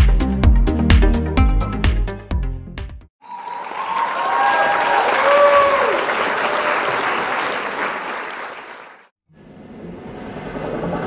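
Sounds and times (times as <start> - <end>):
applause: 3.2 - 9.1.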